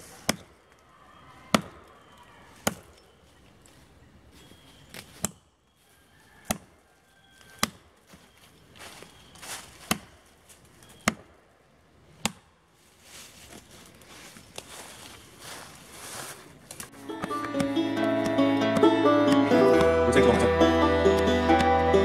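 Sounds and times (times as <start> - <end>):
axe chopping into tree: 0.2 - 0.5, 2.6 - 3.0, 7.5 - 7.8, 9.8 - 10.2, 11.0 - 11.3, 12.2 - 12.5.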